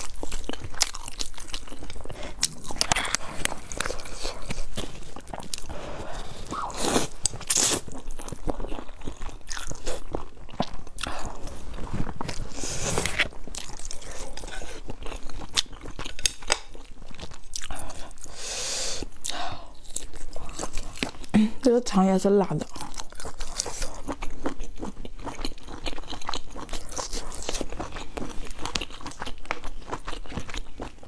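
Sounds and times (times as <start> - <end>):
noodles slurped and chewed: 0.0 - 21.3, 22.6 - 31.0.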